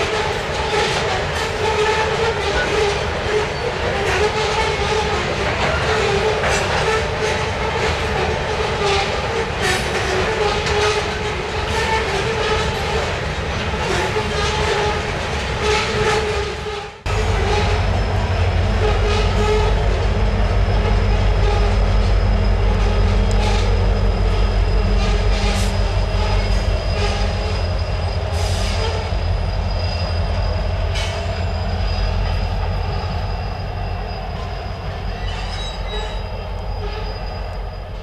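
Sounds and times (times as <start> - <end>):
diesel locomotive engine running: 0.0 - 38.0
train cars rumbling on steel wheels: 0.0 - 38.0
high wheel squeals: 17.1 - 38.0.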